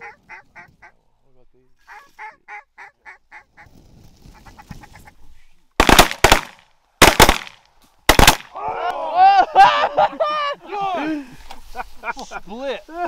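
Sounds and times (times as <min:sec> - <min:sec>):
duck quacks: 0:00.0 - 0:00.9, 0:01.8 - 0:03.7
shotgun blasts: 0:05.8 - 0:08.5
excited voices: 0:08.5 - 0:11.4.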